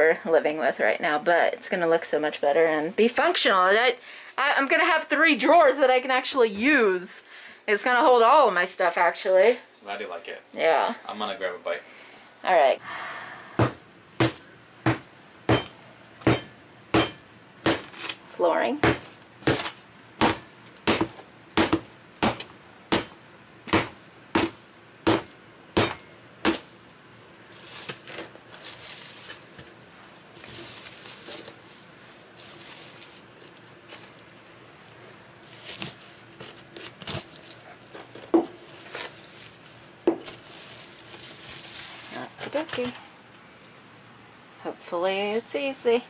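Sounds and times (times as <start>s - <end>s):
hammer striking particleboard: 18.8s - 26.6s.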